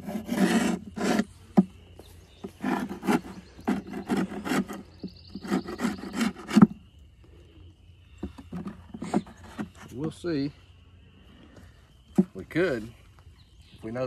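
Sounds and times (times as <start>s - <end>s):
metal tool scraping wood: 0.0s - 6.8s, 8.2s - 10.2s.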